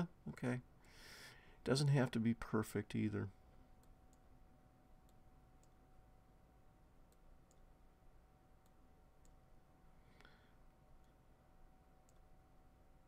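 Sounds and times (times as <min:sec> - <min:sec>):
faint steady whine: 0:00.0 - 0:13.0
computer mouse clicks: 0:05.0 - 0:05.8, 0:07.1 - 0:07.7, 0:12.0 - 0:12.3.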